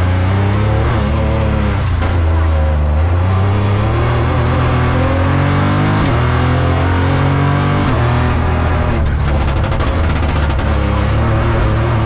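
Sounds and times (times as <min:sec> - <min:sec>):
car engine revving: 0:00.0 - 0:12.0
rough rapid crackling: 0:09.0 - 0:11.4.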